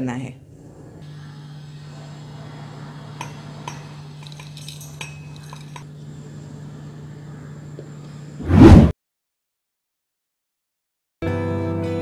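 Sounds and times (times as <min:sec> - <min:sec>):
spices clinking against metal: 0:03.1 - 0:05.9.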